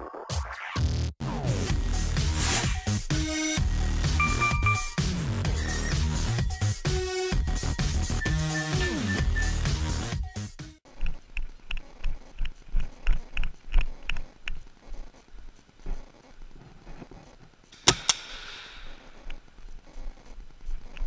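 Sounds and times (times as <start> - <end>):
paintball marker shots echoing: 17.8 - 19.4.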